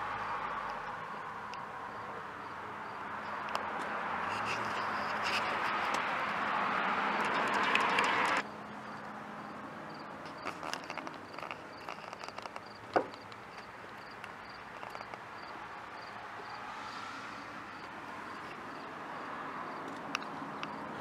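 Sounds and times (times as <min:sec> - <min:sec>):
light clicks and knocks: 0:10.2 - 0:15.2.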